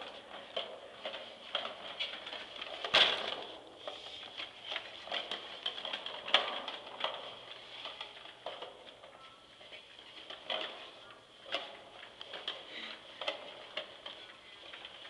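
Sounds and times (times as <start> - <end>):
plastic baby walker rattling: 0.0 - 15.0.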